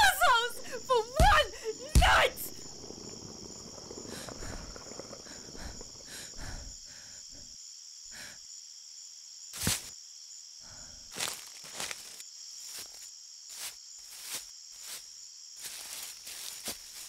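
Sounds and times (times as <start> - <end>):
crickets chirping: 0.0 - 17.0
soft rustling: 2.0 - 6.6.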